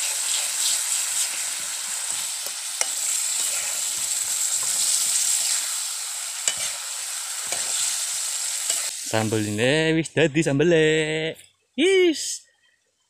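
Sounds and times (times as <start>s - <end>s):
meat sizzling in a wok: 0.0s - 9.6s.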